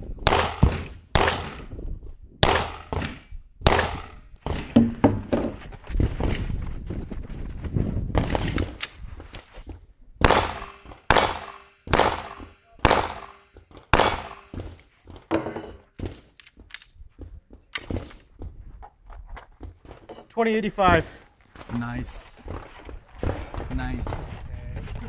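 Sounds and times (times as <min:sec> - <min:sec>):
gunshots with short echo: 0:10.2 - 0:14.6.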